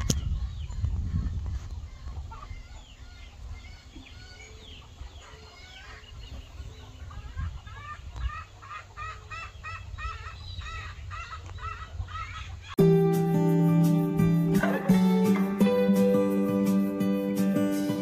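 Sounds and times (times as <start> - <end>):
chickens clucking: 0.0 - 12.8, 14.4 - 15.8.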